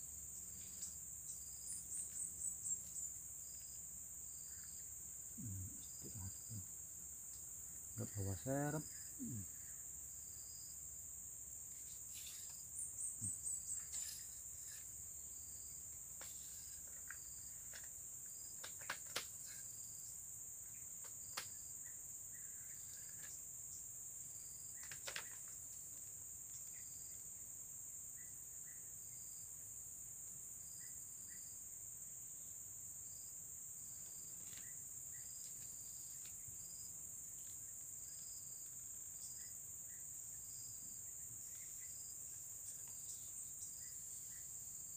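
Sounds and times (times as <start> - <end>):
insects chirping: 0.0 - 44.9.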